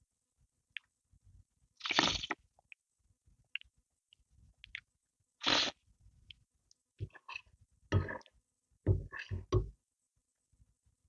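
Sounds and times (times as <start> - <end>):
wet mouthfuls of soup: 1.8 - 2.4, 4.6 - 5.8.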